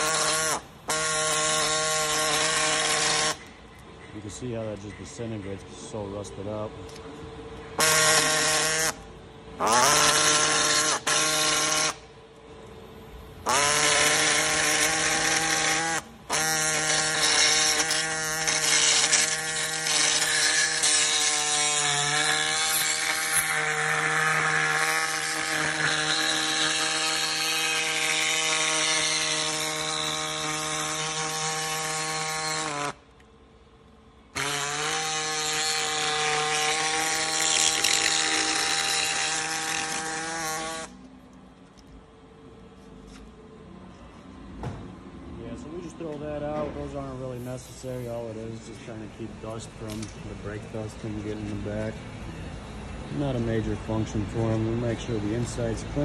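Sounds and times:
air saw cutting metal: 0:00.0 - 0:07.0, 0:07.8 - 0:09.0, 0:09.6 - 0:12.2, 0:13.4 - 0:33.0, 0:34.3 - 0:41.0, 0:45.5 - 0:52.0, 0:53.1 - 0:56.0
air exhaust hiss: 0:44.6 - 0:56.0.

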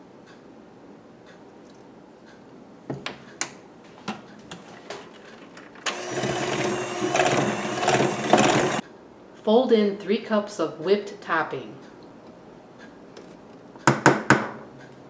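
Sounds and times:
electric hand mixer whirring: 0:05.8 - 0:08.8.

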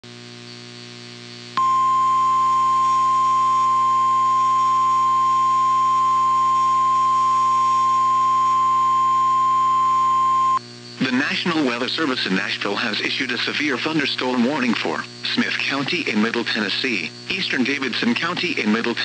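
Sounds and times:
faint radio hum: 0:00.1 - 0:19.0
loud steady alarm tone: 0:01.6 - 0:10.6.

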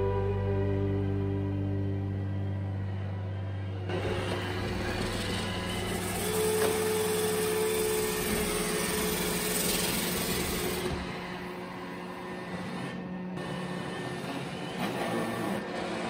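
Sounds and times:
background music: 0:00.0 - 0:04.6
robot vacuum cleaner whirring: 0:00.0 - 0:16.0.

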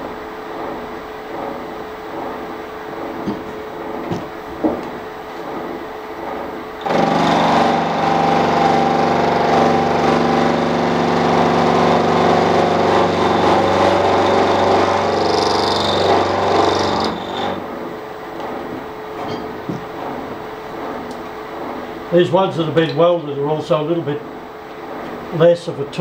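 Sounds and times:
milling machine cutting metal: 0:06.8 - 0:17.7.

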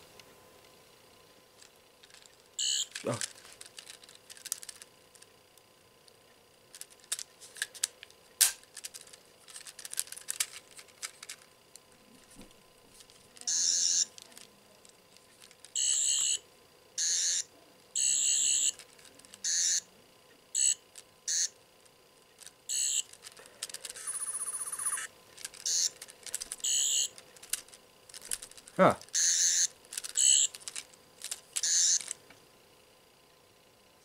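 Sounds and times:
plastic toy clicks and rattles: 0:01.6 - 0:05.3, 0:06.7 - 0:11.9, 0:13.0 - 0:16.3, 0:18.5 - 0:19.7, 0:22.4 - 0:32.2.

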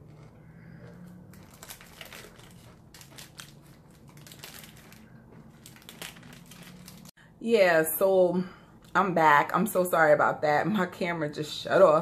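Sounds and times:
wrapper crinkling: 0:01.3 - 0:07.1.

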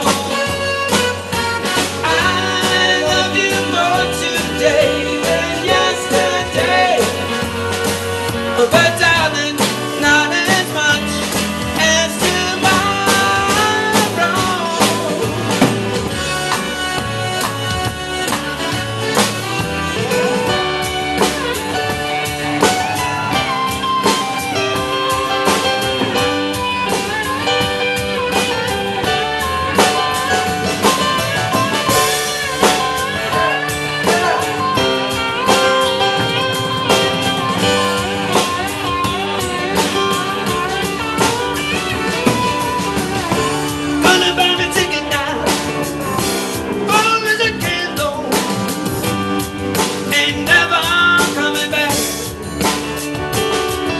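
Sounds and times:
man singing: 0:00.0 - 0:00.9, 0:01.6 - 0:07.8, 0:08.4 - 0:15.7, 0:43.4 - 0:48.9, 0:50.0 - 0:52.4
electric guitar: 0:00.0 - 0:53.9
steady drum beat: 0:00.0 - 0:53.9.

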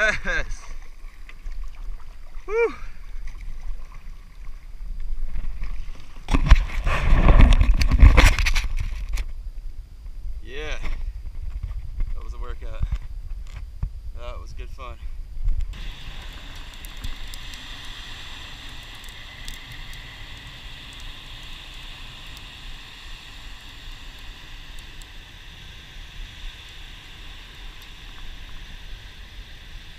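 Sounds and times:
wind hiss: 0:00.0 - 0:03.9, 0:04.8 - 0:29.9
water: 0:00.0 - 0:09.7, 0:15.7 - 0:29.9.

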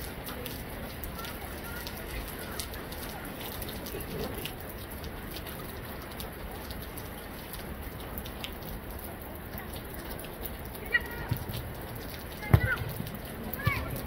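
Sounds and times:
faint distant voices: 0:09.4 - 0:14.0.

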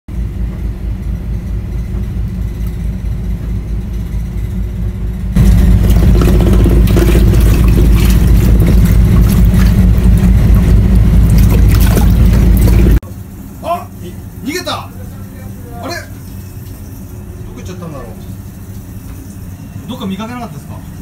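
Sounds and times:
boat engine humming: 0:00.1 - 0:21.0
water splashing: 0:05.4 - 0:13.0
water pouring from hose: 0:05.7 - 0:10.3, 0:11.2 - 0:13.0.

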